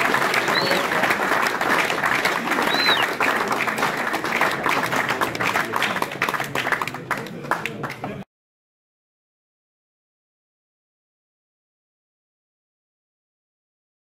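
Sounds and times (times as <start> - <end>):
crowd applauding: 0.0 - 8.2.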